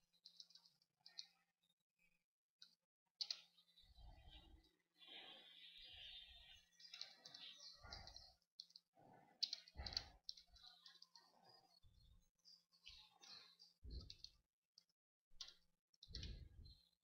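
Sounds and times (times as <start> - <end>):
faint keyboard typing: 0.1 - 1.3, 2.6 - 3.5, 6.8 - 11.6, 12.8 - 16.8.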